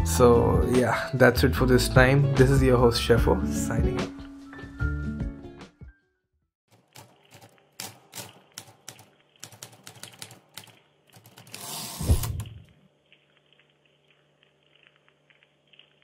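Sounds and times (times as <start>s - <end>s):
whoosh into low thud: 12.0s - 12.6s.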